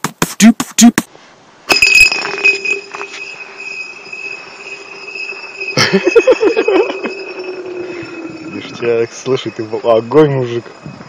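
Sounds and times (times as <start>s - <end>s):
bottle clinking on ice: 1.7s - 3.6s
bottle ringing as it slides: 1.7s - 11.0s.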